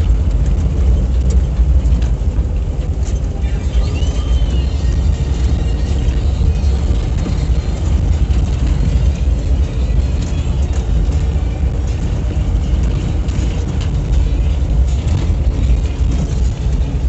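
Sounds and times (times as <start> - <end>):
engine and road rumble in cabin: 0.0 - 17.0.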